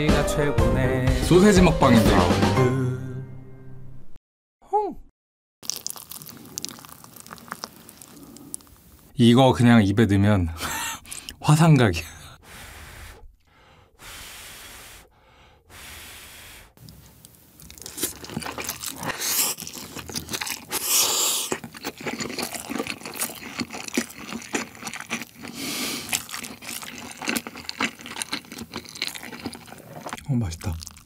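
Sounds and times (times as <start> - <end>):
slurping noodles: 5.6 - 9.1, 17.6 - 31.0
wet chewing: 5.6 - 9.1, 11.0 - 11.4, 16.8 - 31.0
sharp breaths through pursed lips: 12.2 - 16.8
blowing on hot noodles: 12.4 - 13.3, 14.0 - 16.8, 20.7 - 21.5, 25.5 - 26.1.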